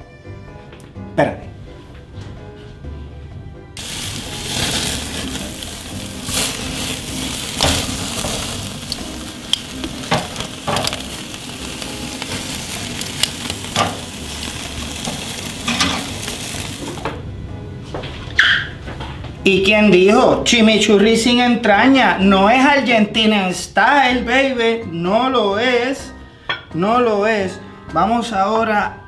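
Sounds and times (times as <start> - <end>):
steak sizzling on a grill: 3.8 - 17.1.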